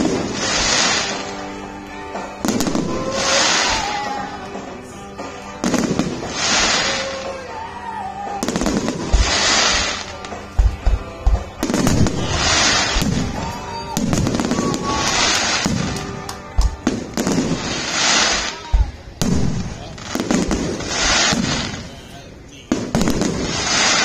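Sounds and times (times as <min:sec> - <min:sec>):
crackling firework hisses: 0:00.0 - 0:01.7, 0:02.4 - 0:04.9, 0:05.6 - 0:10.5, 0:11.6 - 0:24.0
firework shells bursting: 0:08.4 - 0:21.9.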